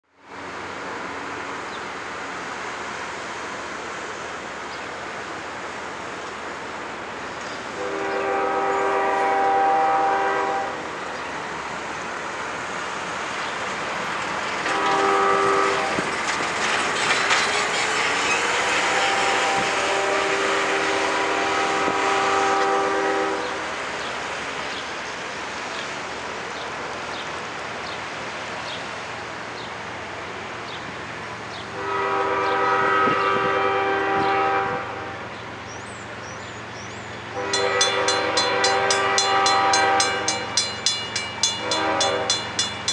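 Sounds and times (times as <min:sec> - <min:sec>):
train rumbling: 0:00.2 - 0:42.9
locomotive air horn blasts: 0:07.8 - 0:10.8, 0:14.7 - 0:16.1, 0:18.7 - 0:23.7, 0:31.8 - 0:35.2, 0:37.3 - 0:40.6, 0:41.5 - 0:42.5.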